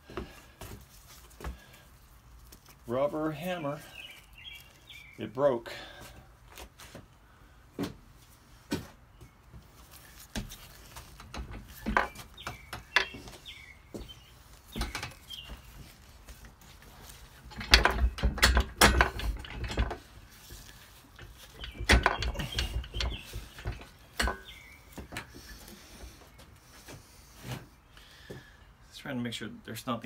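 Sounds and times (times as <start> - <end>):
tools clattering: 16.9 - 25.4.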